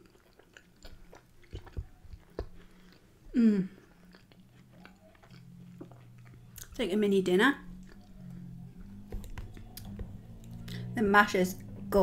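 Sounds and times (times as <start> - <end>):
person chewing: 0.0 - 6.8, 7.6 - 11.0
person humming mmm: 3.3 - 4.0.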